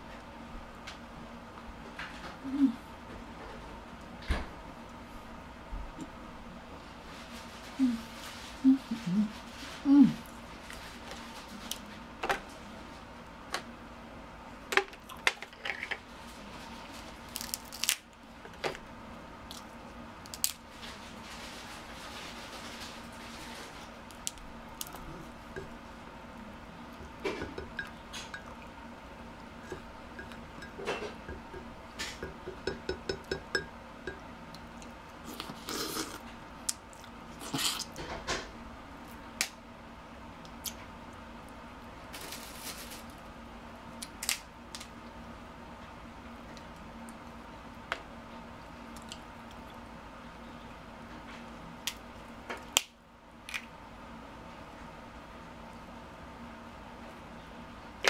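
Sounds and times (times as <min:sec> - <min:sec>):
faint steady hum: 0:00.0 - 0:58.0
crab shells cracking: 0:17.3 - 0:18.2, 0:44.0 - 0:44.9.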